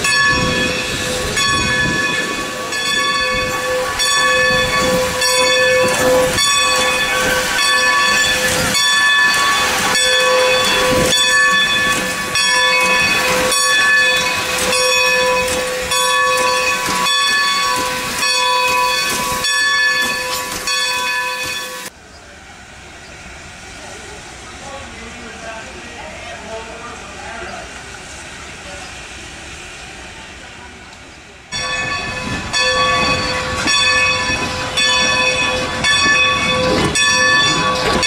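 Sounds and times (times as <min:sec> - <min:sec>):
locomotive bell ringing: 0:00.0 - 0:22.0, 0:31.5 - 0:38.0
hiss of steam: 0:00.0 - 0:33.6.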